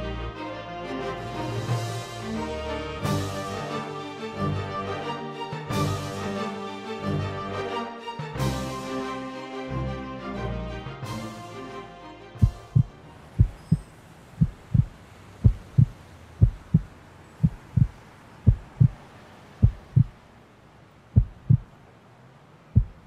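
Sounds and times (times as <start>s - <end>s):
heartbeat thumps: 12.4s - 13.8s, 14.4s - 19.0s, 19.6s - 20.2s, 21.2s - 21.7s, 22.8s - 23.0s.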